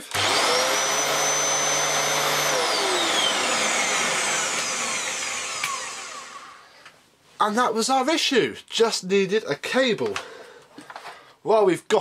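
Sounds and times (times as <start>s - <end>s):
vacuum cleaner motor whine: 0.0s - 6.7s.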